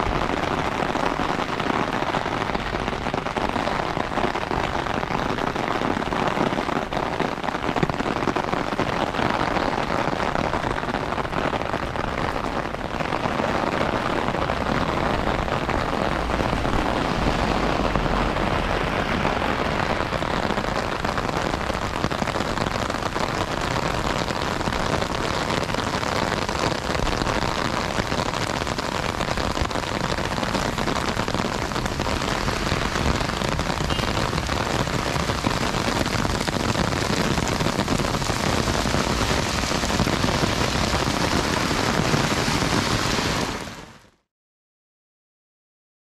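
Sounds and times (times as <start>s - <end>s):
heavy rain: 0.0s - 44.2s.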